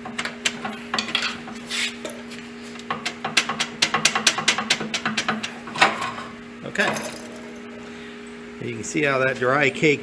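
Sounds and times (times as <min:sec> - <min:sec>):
metal clinking and scraping: 0:00.6 - 0:02.3.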